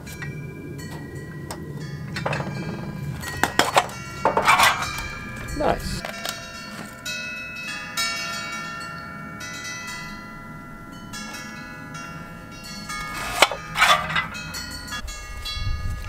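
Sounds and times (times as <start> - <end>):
bell-like chimes ringing: 0.0 - 16.0
soil blocker scraping potting mix: 13.0 - 14.4.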